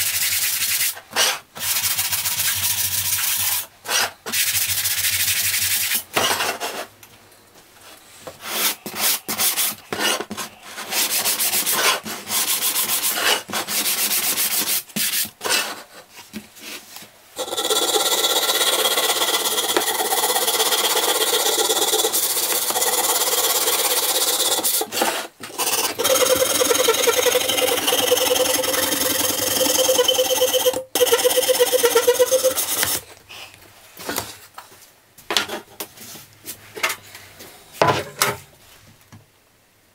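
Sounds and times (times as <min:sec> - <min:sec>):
sanding sponge rubbing wood: 0:10.8 - 0:15.3, 0:17.4 - 0:24.9, 0:25.6 - 0:33.0.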